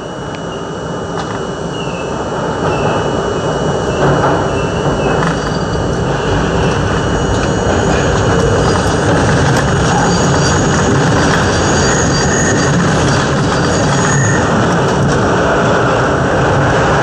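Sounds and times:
thin steady high tone: 0.0s - 14.6s
subway train running: 0.0s - 17.0s.

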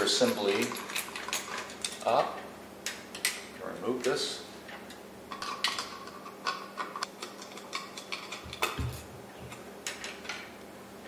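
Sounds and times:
small metal parts clinking: 0.0s - 2.3s.

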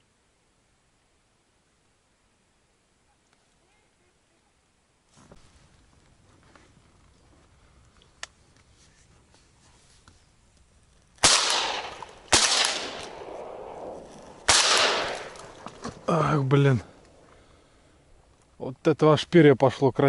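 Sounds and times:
faint click: 3.2s - 3.6s, 7.8s - 8.7s
shotgun shots echoing: 11.2s - 15.8s.

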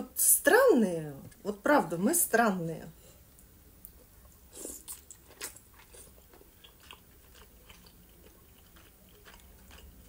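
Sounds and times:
chewing soft food: 3.8s - 10.0s.

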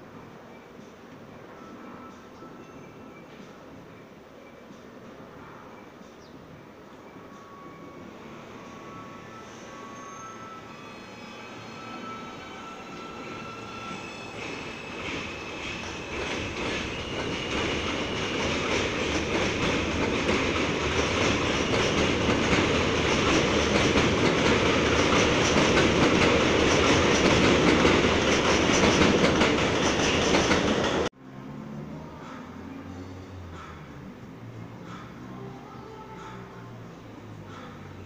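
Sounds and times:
train wheels clattering over rail joints: 14.4s - 31.1s.

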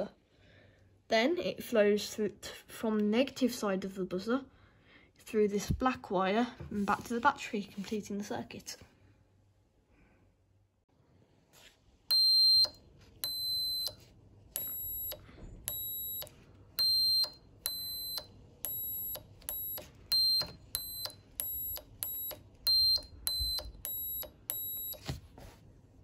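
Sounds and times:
electronic buzzer beeps: 12.1s - 14.0s, 14.6s - 25.1s.

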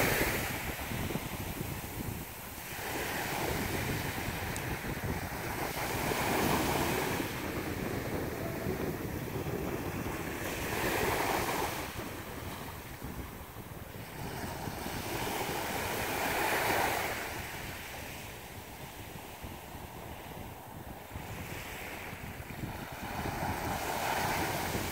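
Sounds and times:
small waves breaking on beach: 0.0s - 24.9s
wind rumbling on microphone: 0.0s - 24.9s.

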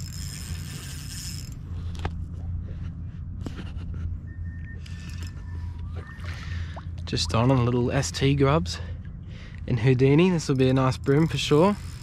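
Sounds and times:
fishing reel whirring: 0.0s - 2.2s, 4.7s - 6.5s, 10.3s - 12.0s.

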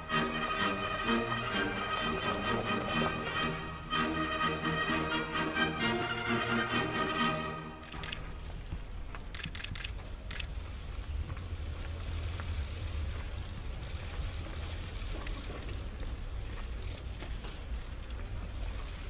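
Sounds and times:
sharp clicks: 7.8s - 8.4s.

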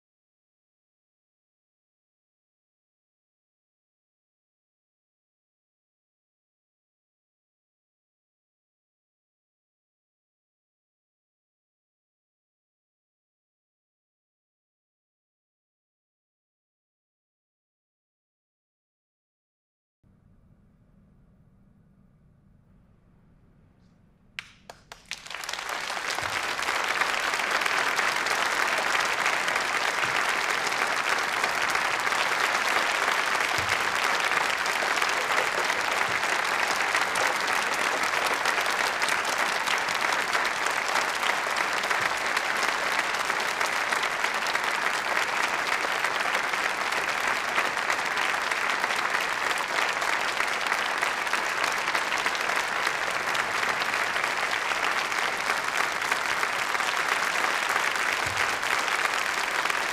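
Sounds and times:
audience applauding: 24.4s - 59.9s.

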